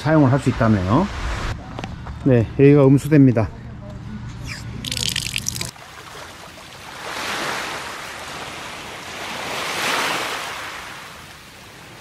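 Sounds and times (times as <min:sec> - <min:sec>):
sea waves washing onto beach: 0:04.9 - 0:12.0.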